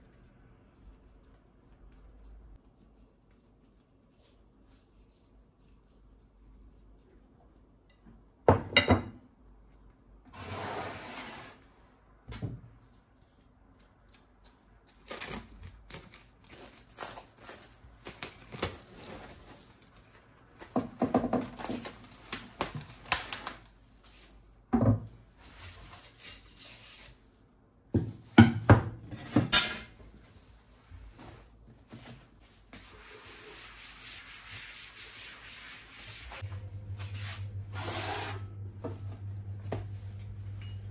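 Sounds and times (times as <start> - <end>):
kitchen knocks and clatters: 7.9 - 9.2, 20.6 - 22.0, 24.7 - 25.1, 27.9 - 30.0
rubbing and scraping: 32.8 - 37.6.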